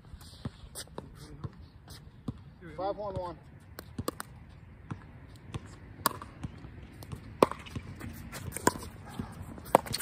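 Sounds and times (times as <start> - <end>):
shoe steps on hard court: 3.1 - 10.0
paddles hitting plastic ball: 4.0 - 4.3, 6.0 - 9.0.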